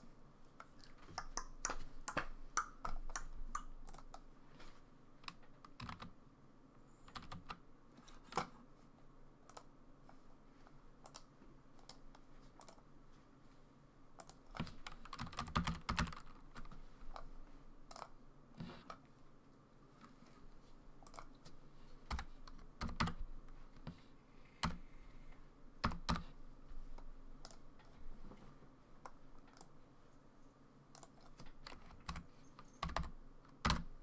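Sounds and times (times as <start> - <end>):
typing on computer keyboard: 1.1 - 4.2, 5.2 - 6.1, 7.1 - 7.6, 12.6 - 12.8, 14.2 - 16.7, 22.1 - 23.2, 24.6 - 24.8, 25.8 - 26.3, 30.9 - 33.9.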